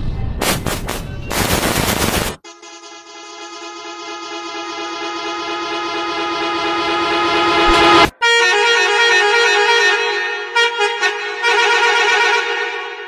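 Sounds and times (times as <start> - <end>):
higher-pitched horn tone: 1.3 - 13.0
train horn blast: 2.4 - 13.0.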